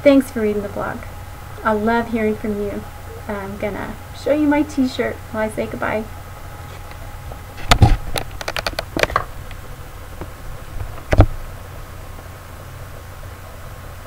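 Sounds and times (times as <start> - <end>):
steady low hum: 0.0 - 14.0
clicks and rattles: 7.6 - 9.6.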